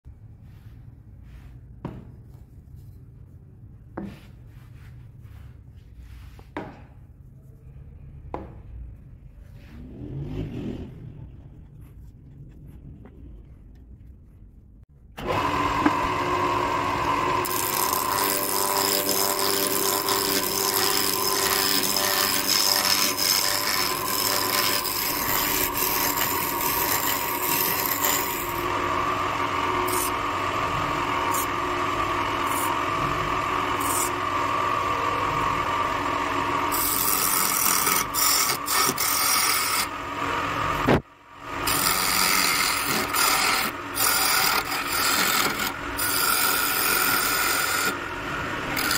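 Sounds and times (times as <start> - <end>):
wood lathe motor hum: 15.2 - 48.9
turning tool scraping wood: 15.3 - 40.0, 40.6 - 48.9.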